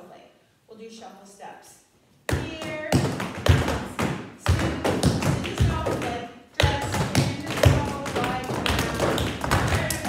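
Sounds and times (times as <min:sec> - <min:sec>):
tap shoes on hard floor: 0:02.3 - 0:10.0.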